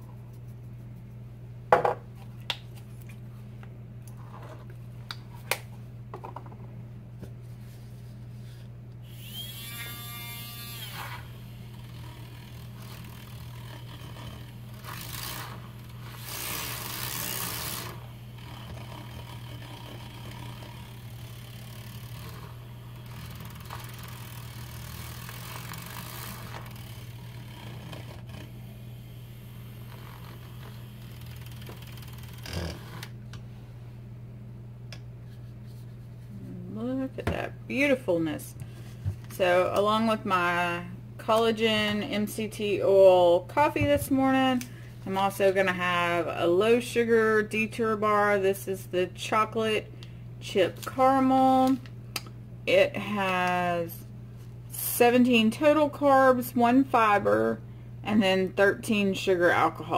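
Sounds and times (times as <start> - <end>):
milk frother whirring: 9.0 - 33.2.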